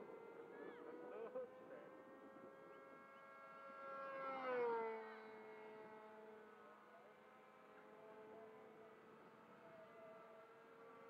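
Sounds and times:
model airplane engine passing: 0.0s - 6.7s.

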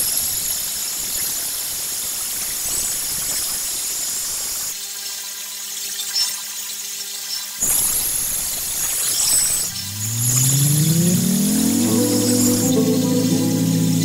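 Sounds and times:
grinder motor hum: 9.7s - 14.0s.

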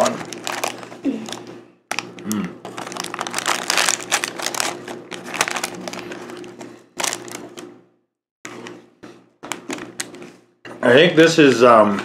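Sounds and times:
snack packaging crinkling: 0.0s - 7.7s.

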